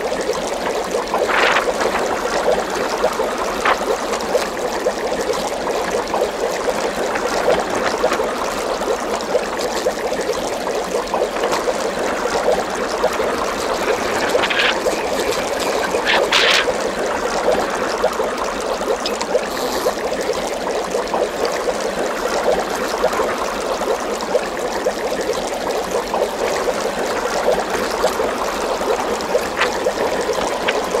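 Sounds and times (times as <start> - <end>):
water trickling and bubbling: 0.0 - 31.0.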